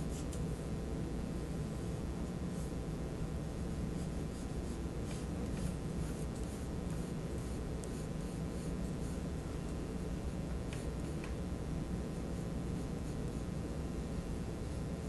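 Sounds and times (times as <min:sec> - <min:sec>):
steady low hum: 0:00.0 - 0:15.0
pencil scratching on paper: 0:04.0 - 0:09.3.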